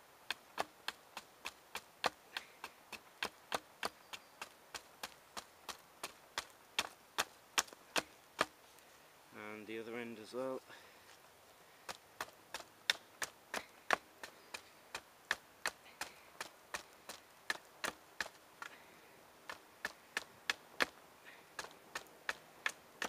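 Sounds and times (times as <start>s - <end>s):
hatchet chopping wood: 6.4s - 8.6s, 19.5s - 21.0s.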